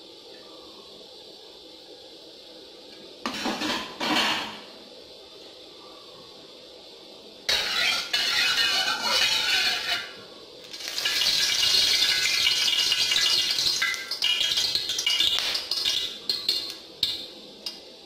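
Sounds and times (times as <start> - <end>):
wok sizzling: 0.0 - 18.0
metal ladle scraping pan: 7.5 - 14.6.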